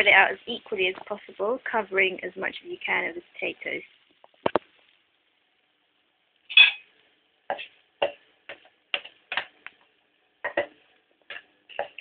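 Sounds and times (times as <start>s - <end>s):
wooden spoon tapping a frying pan: 7.5s - 9.8s, 10.4s - 12.0s.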